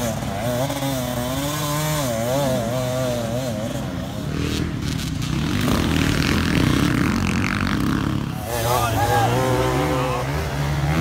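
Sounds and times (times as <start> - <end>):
dirt bike engine revving: 0.0 - 11.0
dirt bike engine running rough: 0.0 - 11.0.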